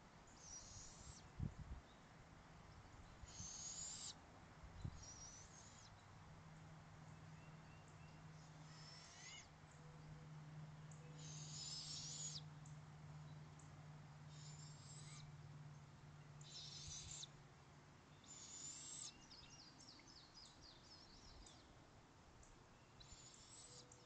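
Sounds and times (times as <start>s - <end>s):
owlet raspy hissing begging calls: 3.3s - 4.2s, 8.7s - 9.4s, 11.2s - 12.4s, 14.3s - 15.3s, 16.4s - 17.3s, 18.2s - 19.1s.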